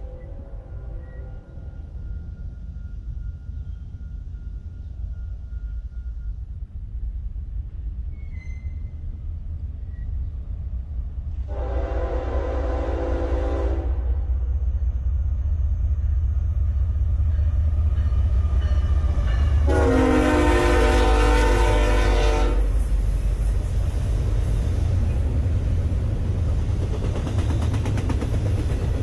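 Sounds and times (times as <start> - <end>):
train rumble: 0.0 - 29.0
locomotive air horn blasts: 11.5 - 14.2, 19.6 - 22.8.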